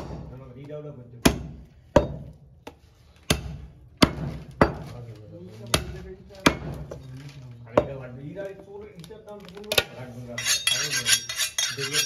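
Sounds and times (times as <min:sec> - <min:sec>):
cleaver chopping on wooden block: 0:01.2 - 0:04.9.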